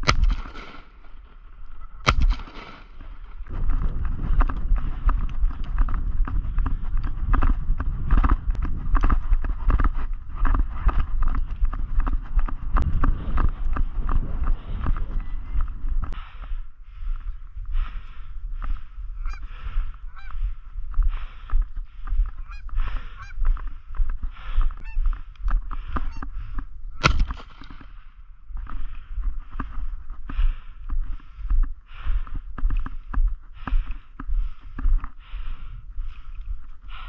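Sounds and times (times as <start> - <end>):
wind rumble on microphone: 3.0 - 37.0
geese honking: 19.2 - 20.6, 22.3 - 23.5, 24.8 - 25.2.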